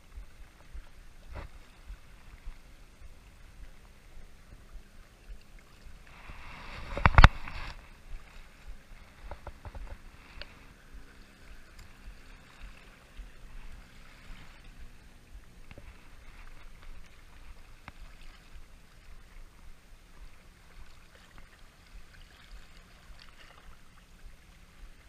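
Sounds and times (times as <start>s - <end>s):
light wind: 0.0s - 25.0s
small waves lapping: 0.0s - 25.0s
faint clicks: 9.2s - 13.3s.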